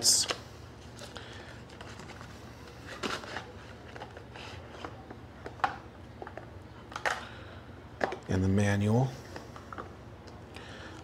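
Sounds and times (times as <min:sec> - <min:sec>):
cardboard rustling and scraping: 0:01.7 - 0:05.0.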